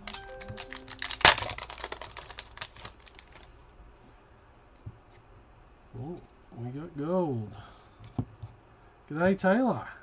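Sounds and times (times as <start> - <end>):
cards riffled by hand: 0.0 - 3.5.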